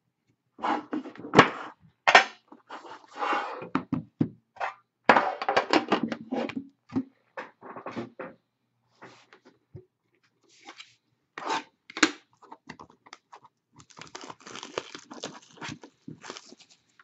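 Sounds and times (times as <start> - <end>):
rustling: 13.8 - 17.0.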